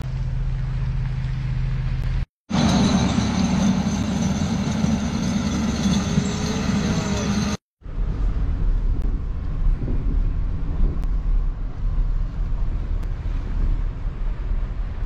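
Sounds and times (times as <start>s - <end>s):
vehicle interior rumble: 0.0s - 3.1s, 7.0s - 15.0s
wind buffeting microphone: 7.8s - 15.0s.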